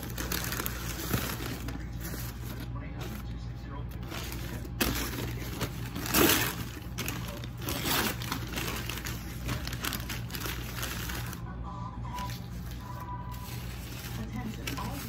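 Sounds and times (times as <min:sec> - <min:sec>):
paper wrappers rustling: 0:00.0 - 0:15.0.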